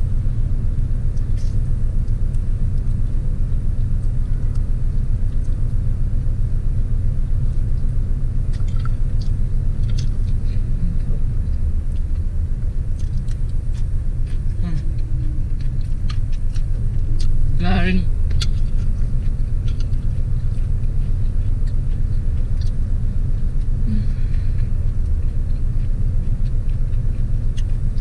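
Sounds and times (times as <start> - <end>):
car engine idling: 0.0 - 28.0
chewing sounds: 7.3 - 28.0.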